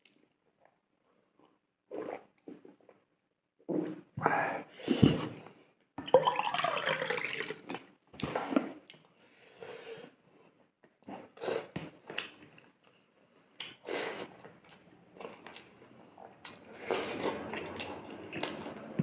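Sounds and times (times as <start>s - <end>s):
loud slurp: 16.6s - 18.7s.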